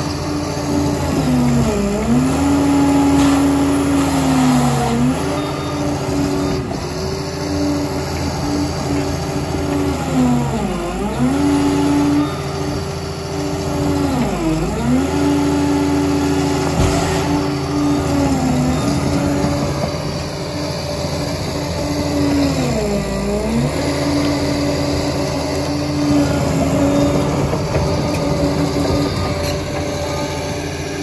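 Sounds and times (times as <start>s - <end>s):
diesel engine running: 0.0s - 31.0s.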